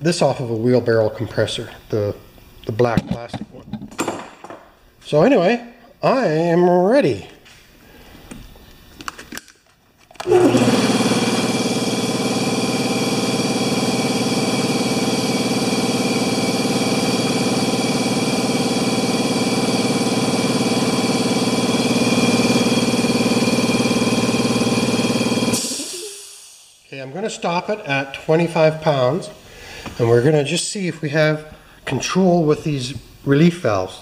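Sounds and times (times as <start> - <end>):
air compressor running: 10.2 - 26.9.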